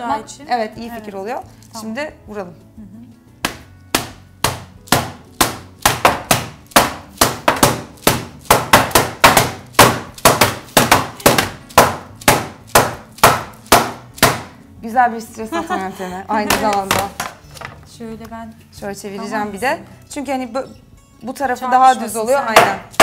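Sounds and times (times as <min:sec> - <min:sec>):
metal trays rapping on wood: 0:03.5 - 0:14.5, 0:22.5 - 0:23.0.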